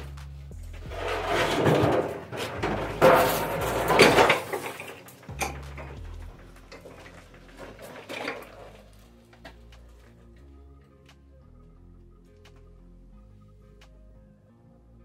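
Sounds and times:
metal clattering and clanking: 0.6s - 9.0s.

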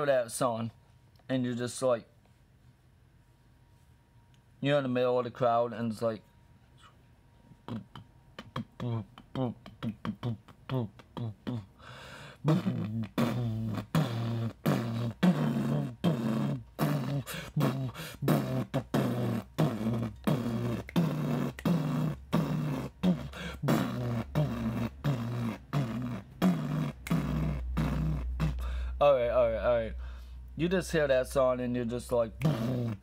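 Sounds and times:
man beatboxing: 7.7s - 11.8s, 12.4s - 29.9s, 30.7s - 33.0s.

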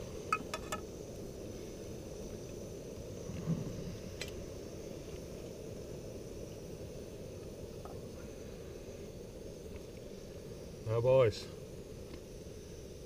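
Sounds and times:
wind on microphone: 3.2s - 4.2s.

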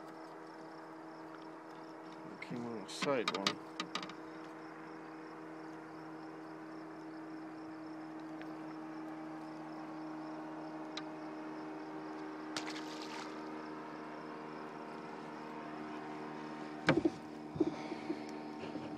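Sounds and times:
boat motor idling: 16.8s - 18.9s
sharp knocks: 16.9s - 17.8s.

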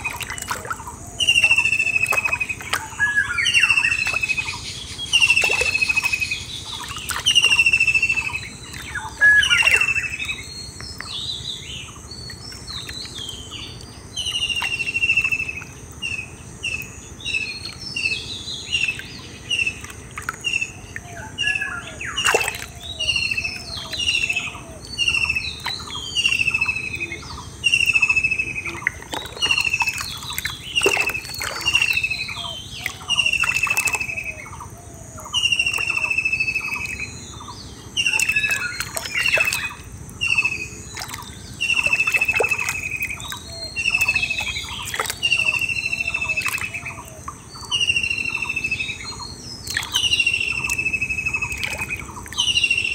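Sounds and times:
hands splashing in muddy water: 0.0s - 2.9s, 28.9s - 32.1s
chorus of bird chirps: 0.0s - 52.9s.

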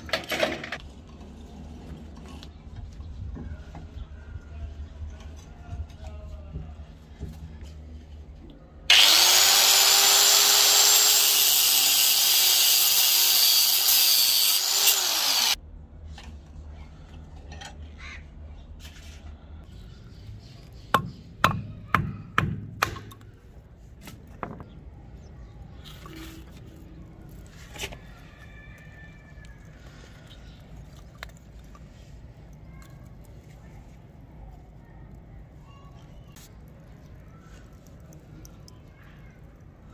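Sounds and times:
angle grinder cutting metal: 8.9s - 15.6s.

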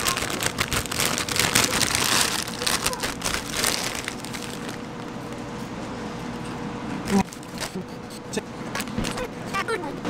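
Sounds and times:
potato chips crackling: 0.0s - 5.2s
foil bag crinkling: 0.0s - 5.3s.

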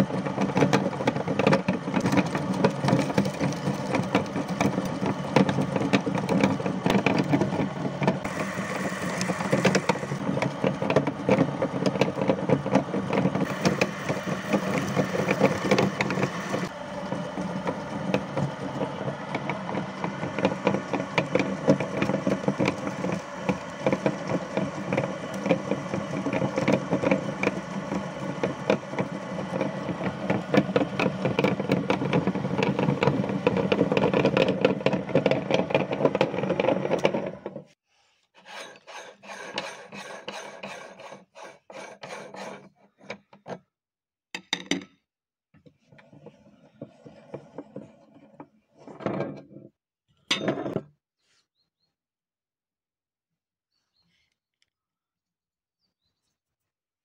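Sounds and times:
grinder rasping and crunching: 0.0s - 37.8s
meat grinder motor hum: 0.0s - 37.8s.

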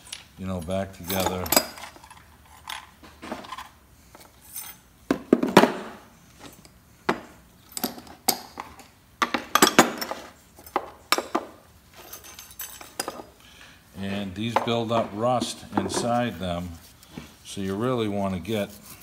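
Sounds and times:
metal clips and tools clinking: 0.0s - 4.8s, 7.6s - 11.4s, 12.0s - 13.3s.

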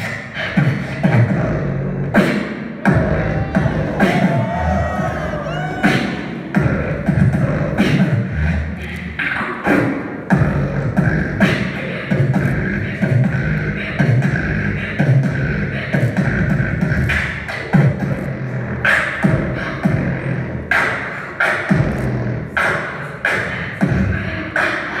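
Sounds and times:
beatboxing kick and snare: 0.0s - 4.6s, 5.8s - 25.0s
hummed bass line: 2.9s - 5.8s.

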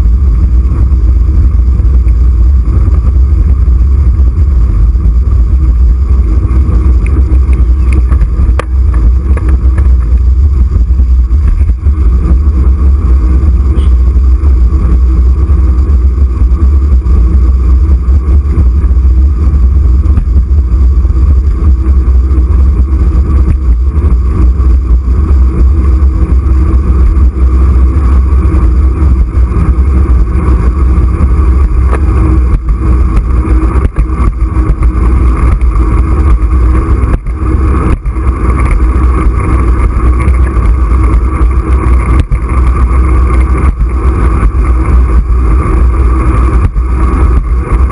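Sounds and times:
faint even hum: 0.0s - 47.9s
wind buffeting microphone: 0.0s - 47.9s.

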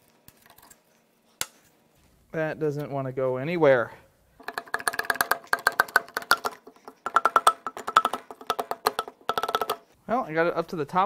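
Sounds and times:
hammer tapping on metal: 4.4s - 9.9s.

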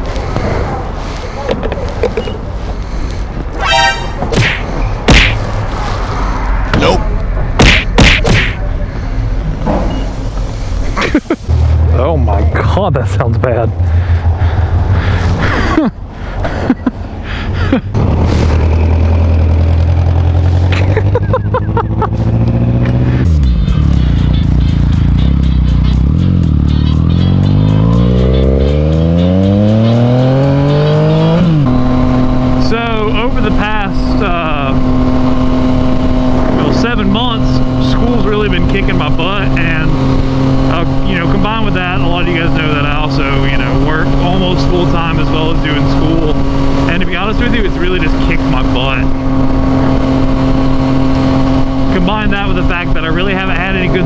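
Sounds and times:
motorcycle engine accelerating: 11.4s - 16.1s, 17.9s - 54.0s.

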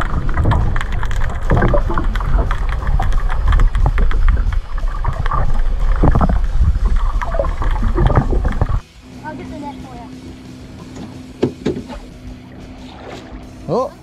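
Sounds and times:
small crackles and pops: 0.0s - 8.8s
underwater rush of water: 0.0s - 13.9s.

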